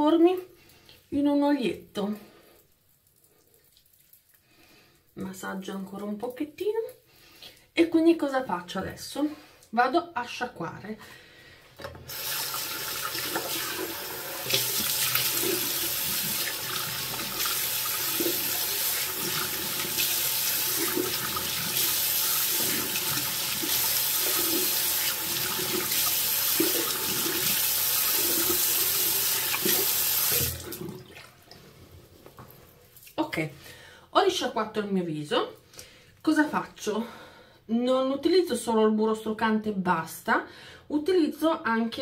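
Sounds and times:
tap running into sink: 29.3 - 30.9.

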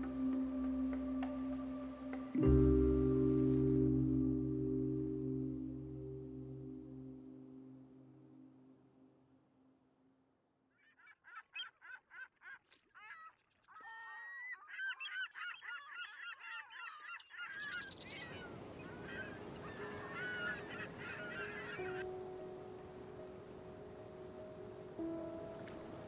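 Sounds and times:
flock of birds calling: 13.0 - 22.1.

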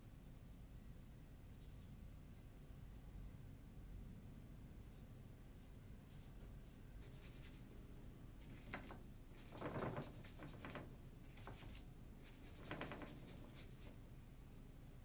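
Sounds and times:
brush stroking across paper: 4.9 - 7.7, 8.4 - 14.0.

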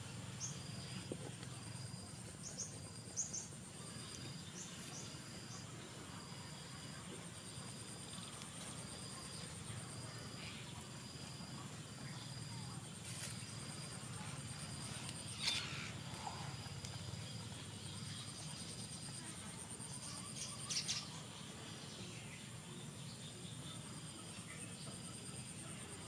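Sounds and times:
insect drone: 0.0 - 26.0.

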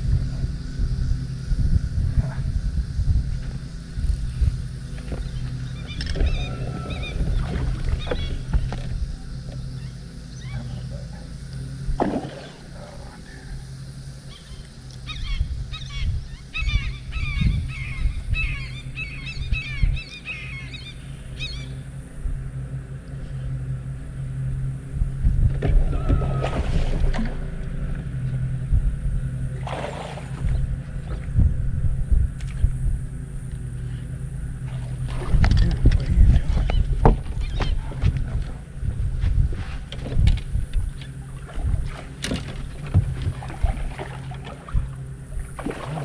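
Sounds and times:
wind buffeting: 0.0 - 9.4, 24.5 - 46.0
electric trolling motor humming: 0.0 - 46.0
birds chattering: 3.6 - 24.7, 32.5 - 38.9, 40.6 - 41.5
knocks on boat: 35.1 - 38.4, 41.6 - 44.9.

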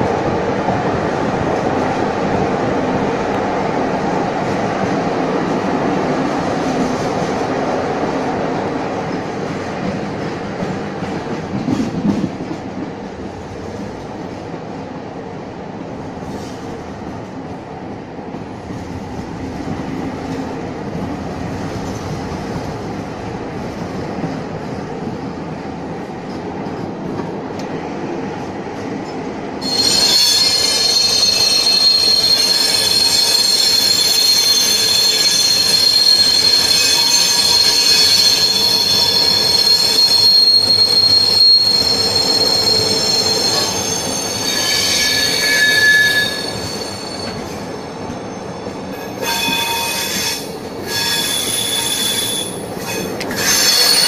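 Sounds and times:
train wheels rumbling on track: 0.0 - 54.0
wheels squealing on rails: 29.6 - 54.0.

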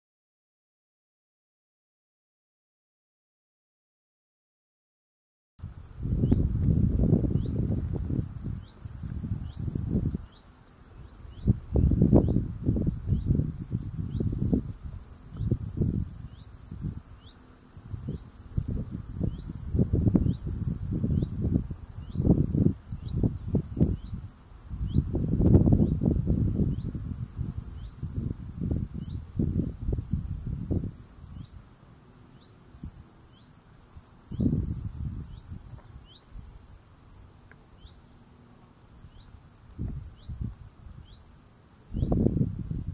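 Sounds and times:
cricket chirping: 5.6 - 42.9.

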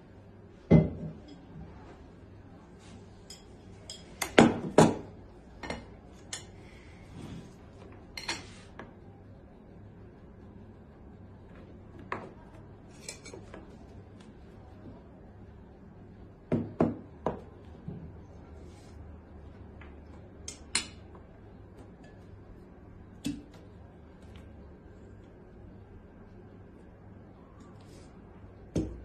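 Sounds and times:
low steady hum: 0.0 - 29.0
cutlery clinking on plates: 13.0 - 13.6.

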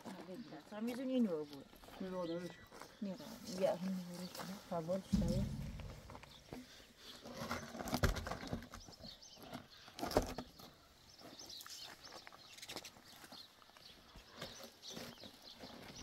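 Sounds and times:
heavy thump of logs: 5.1 - 6.5
logs knocking and scraping: 5.1 - 6.6.

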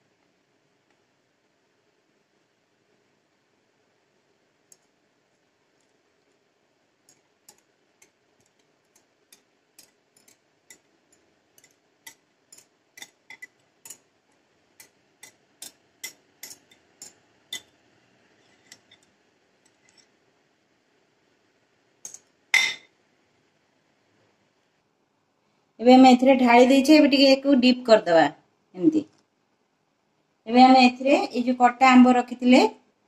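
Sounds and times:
whisk tapping and scraping bowl: 7.1 - 14.1.

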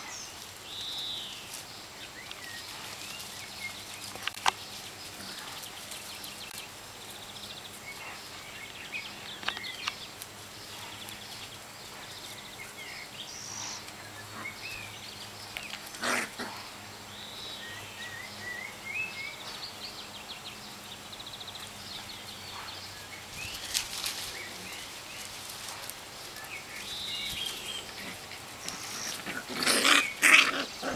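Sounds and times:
birds chirping: 0.0 - 30.9
puppies playing and scuffling: 0.0 - 30.9.

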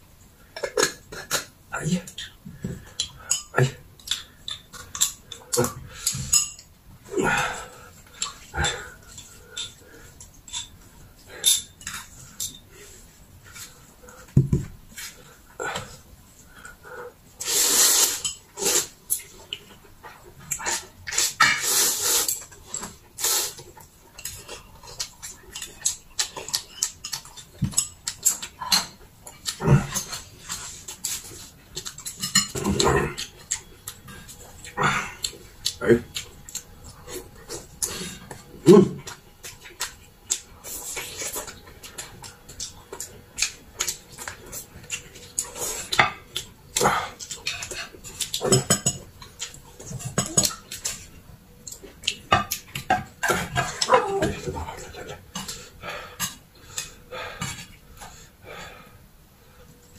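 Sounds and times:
noodles slurped: 17.4 - 19.0
wet chewing and mouth smacks: 23.6 - 53.9
chopsticks clicking on dishes: 24.2 - 30.2.

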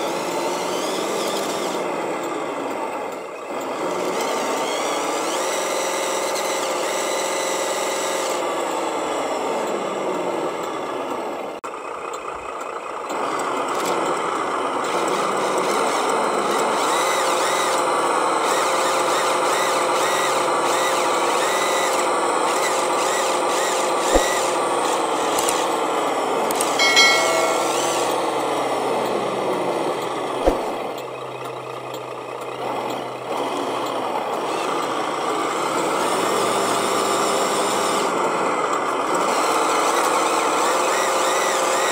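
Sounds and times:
toy truck motor whining: 0.0 - 2.2, 3.6 - 10.5, 14.7 - 25.8.

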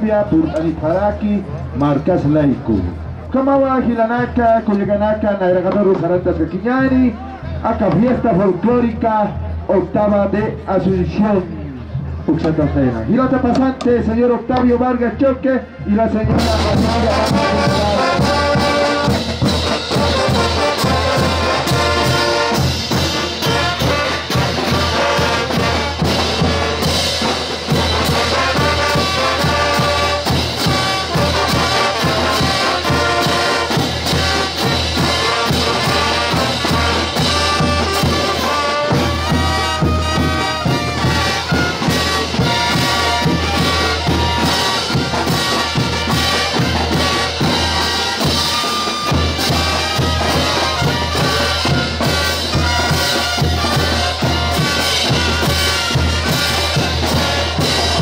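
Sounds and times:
trumpets and trombones melody: 15.6 - 58.0
regular drum beat: 16.2 - 58.0.

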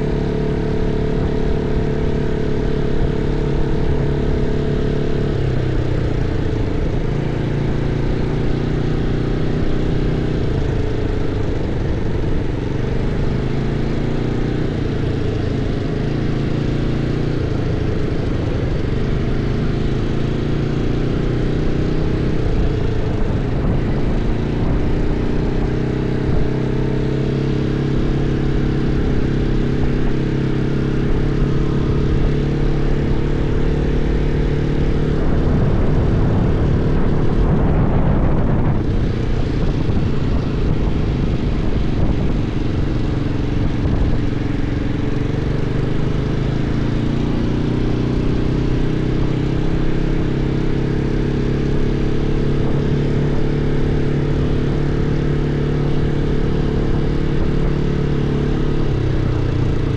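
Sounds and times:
atv engine droning: 0.0 - 59.9
wind rushing: 35.3 - 42.8.

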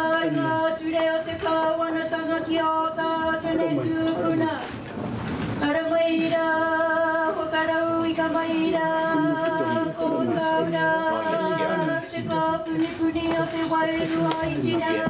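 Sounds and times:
voices singing unaccompanied: 5.7 - 15.0.

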